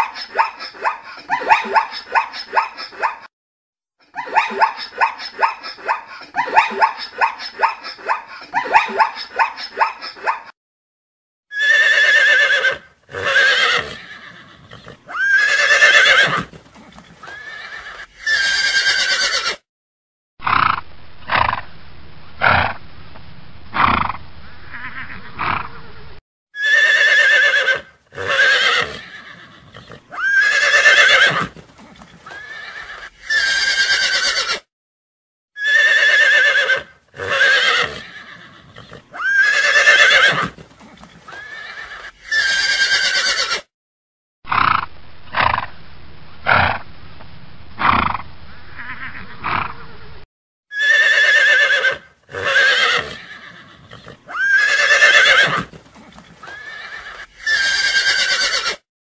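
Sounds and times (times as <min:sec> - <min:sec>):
horses whinnying: 0:11.5 - 0:19.6, 0:24.7 - 0:26.0, 0:26.6 - 0:34.7, 0:35.6 - 0:43.7, 0:48.8 - 0:50.0, 0:50.7 - 0:58.8.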